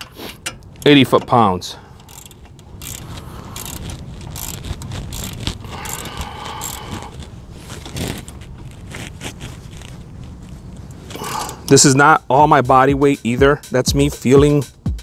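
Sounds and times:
socket ratchet clicking: 2.0s - 7.0s.

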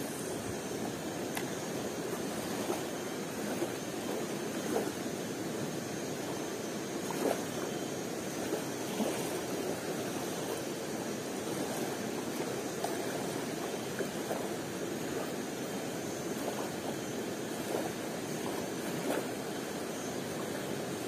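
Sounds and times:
stream water rushing: 0.0s - 21.0s
faint ticks: 1.3s - 1.6s.

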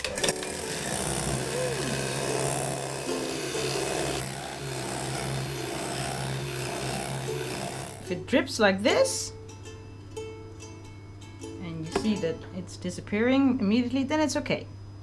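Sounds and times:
electric hand mixer humming: 0.0s - 8.3s.

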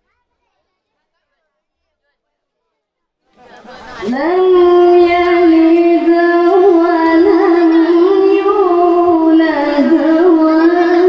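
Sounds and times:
boy chanting melodic recitation: 4.0s - 11.0s.

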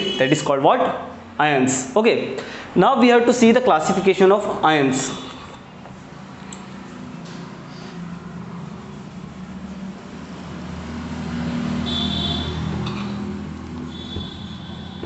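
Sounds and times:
vehicle engine passing: 6.0s - 15.0s.

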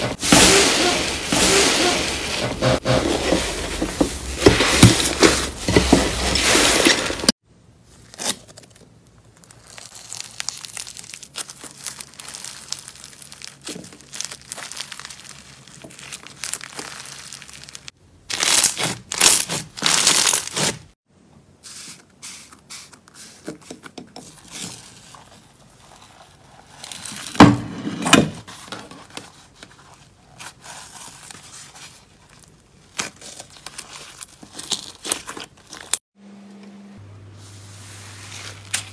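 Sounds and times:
slime squishing and popping: 9.4s - 17.8s.

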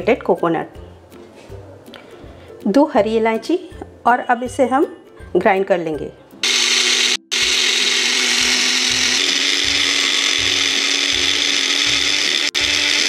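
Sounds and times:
mixer grinder whirring: 6.4s - 13.0s.

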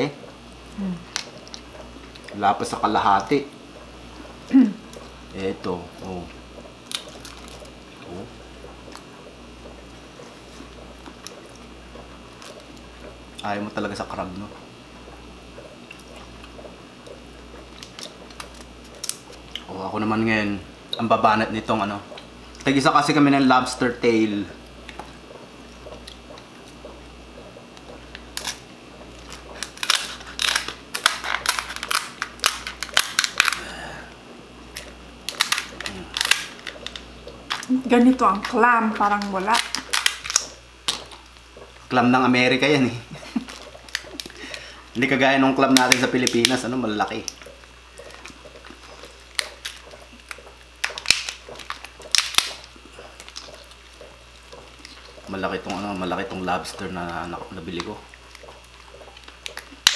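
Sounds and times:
shell snapping and crackling: 1.1s - 2.4s, 6.6s - 8.1s, 17.7s - 19.7s, 27.8s - 33.8s, 34.7s - 37.7s, 38.3s - 41.8s, 43.2s - 44.7s, 45.7s - 55.9s, 57.7s - 59.9s.

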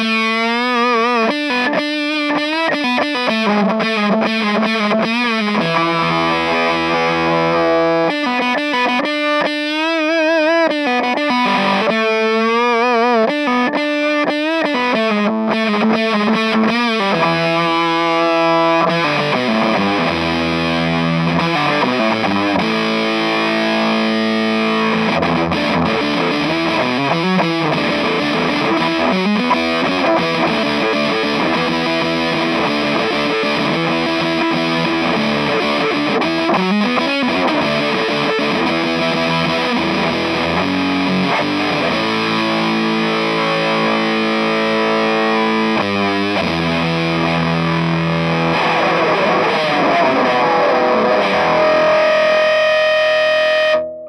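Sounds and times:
fuzzed electric guitar: 0.0s - 54.0s.

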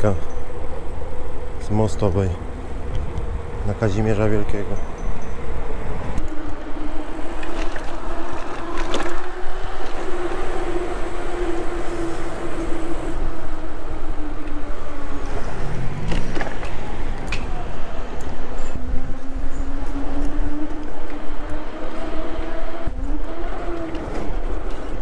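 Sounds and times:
steady low hum: 0.0s - 23.4s
wind rumbling over microphone: 0.0s - 25.0s
tyres rolling on wet pavement: 5.4s - 25.0s.

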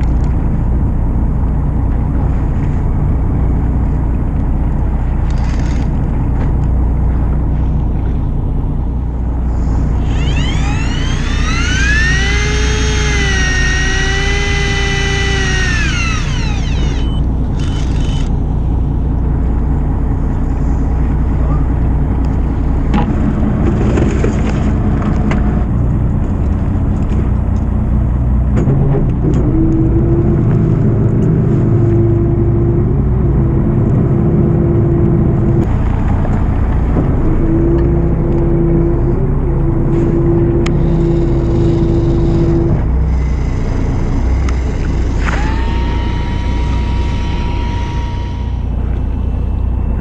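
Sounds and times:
boat engine running: 0.0s - 50.0s
mechanical whine: 0.0s - 50.0s
tone sliding down: 10.0s - 18.3s, 45.0s - 50.0s.

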